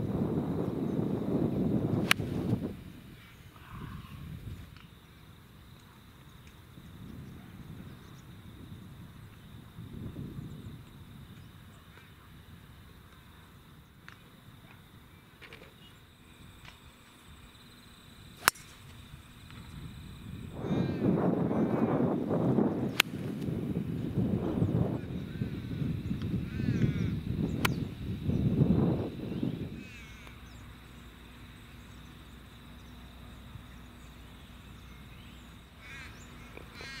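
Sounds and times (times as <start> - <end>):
constant hum: 0.0 - 37.0
golf club striking ball: 2.0 - 2.6, 18.4 - 18.8
bird chirping: 30.3 - 36.9.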